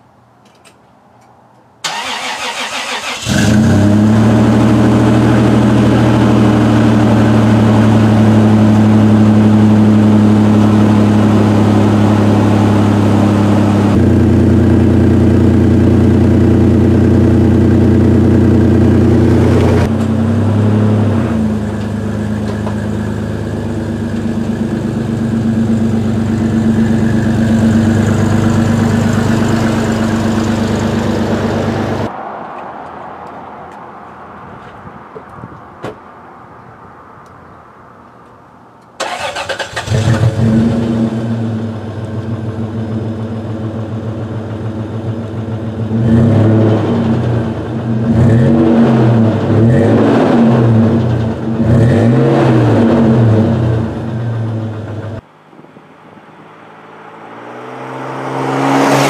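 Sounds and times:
car engine idling: 4.3 - 32.1, 39.0 - 46.1, 53.4 - 55.3.

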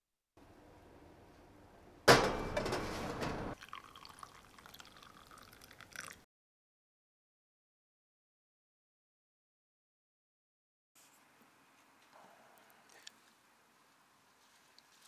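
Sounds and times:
tea pouring into glass cup: 3.6 - 6.2
trickle and drips into cup: 3.6 - 6.3.

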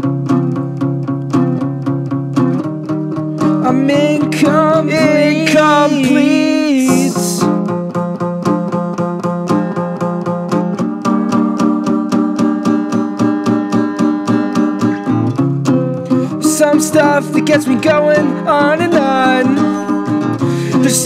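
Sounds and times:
acoustic guitar strumming: 0.0 - 21.0
person singing held note: 5.0 - 7.5.

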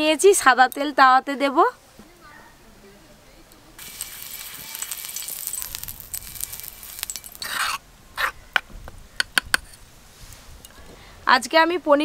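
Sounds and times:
metal spoon clinking in clay bowl: 3.8 - 7.8
oil sizzling on a griddle: 3.8 - 7.8.

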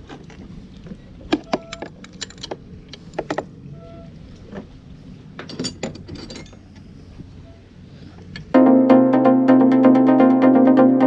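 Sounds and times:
wrenches clinking and clicking: 1.4 - 3.4, 5.4 - 6.6.

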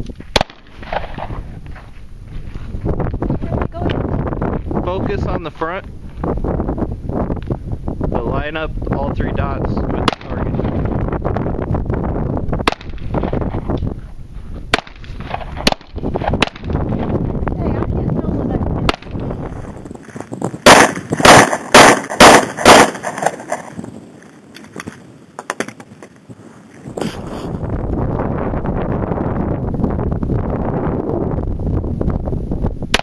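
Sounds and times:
wind rumbling on microphone: 0.0 - 33.0
pistol shots: 0.3 - 1.3, 12.6 - 13.0, 20.6 - 23.3.

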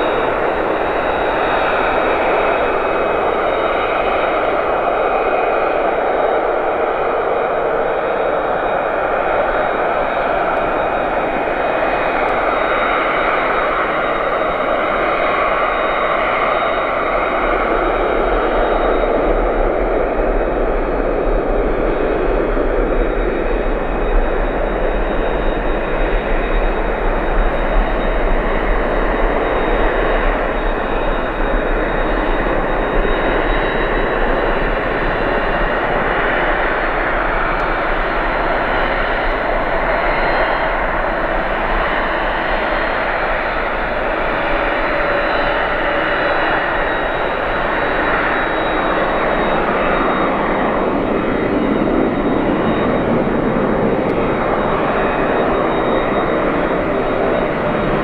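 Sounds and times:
fainter lower whine: 0.0 - 58.0
jet engines rushing with high whine: 0.0 - 58.0.

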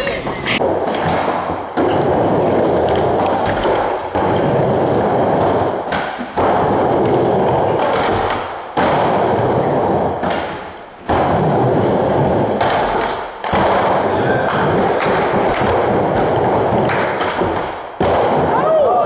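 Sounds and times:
skateboard wheels rolling on wood: 0.0 - 19.0
skateboard thudding on ramp: 0.7 - 18.8.

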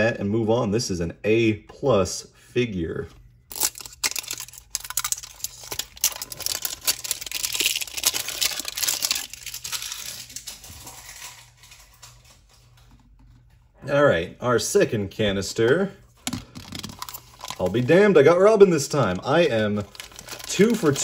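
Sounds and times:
plastic wrap crinkling and tearing: 3.5 - 12.8, 16.4 - 21.0.

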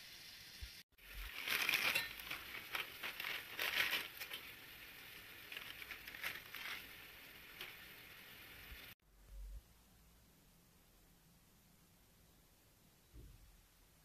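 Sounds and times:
noodle packet crinkling: 1.0 - 4.7, 5.4 - 7.8.

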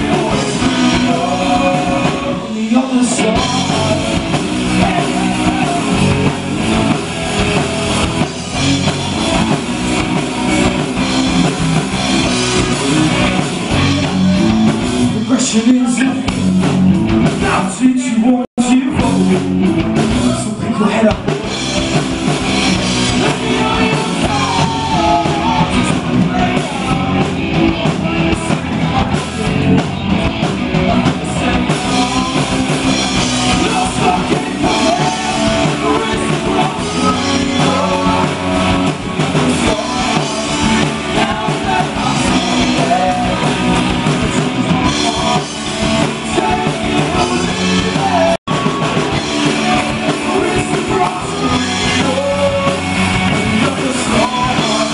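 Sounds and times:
live rock band playing: 0.0 - 54.9.

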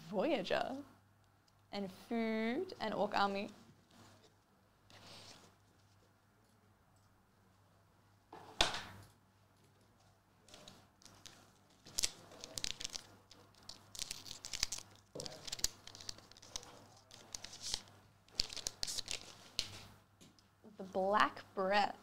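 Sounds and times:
foil wrapper crinkling: 11.0 - 19.8.

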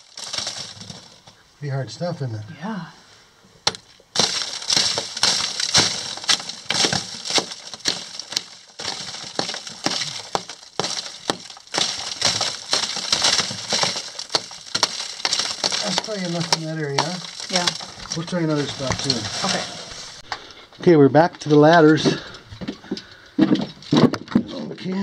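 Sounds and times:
rock crunching: 0.0 - 2.9, 3.6 - 25.0
hammer striking rock: 3.6 - 18.0.

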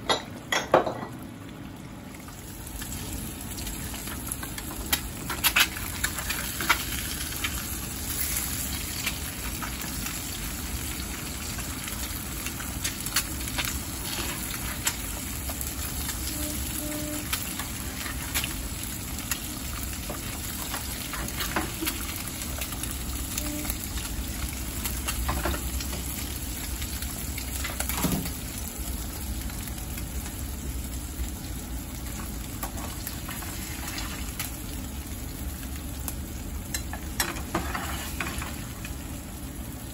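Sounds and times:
eggs sizzling in oil: 0.0 - 39.9
spatula scraping a pan: 14.0 - 14.9, 37.2 - 38.6.

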